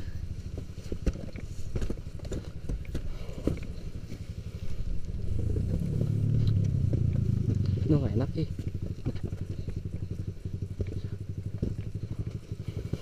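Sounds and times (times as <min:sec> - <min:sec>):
dirt bike engine at low revs: 0:00.0 - 0:13.0
rocks knocking and clattering: 0:00.6 - 0:03.8.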